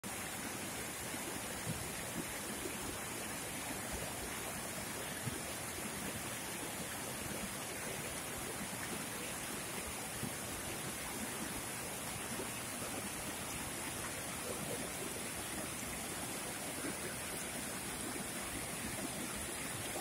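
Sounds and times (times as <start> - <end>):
stream rushing over boulders: 0.0 - 20.0
water splashes: 0.1 - 20.0.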